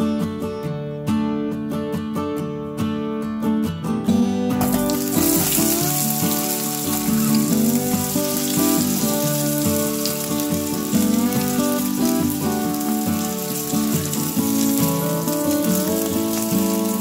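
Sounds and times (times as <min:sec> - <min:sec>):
guitar music: 0:00.0 - 0:17.0
potatoes sizzling in oil: 0:04.6 - 0:17.0.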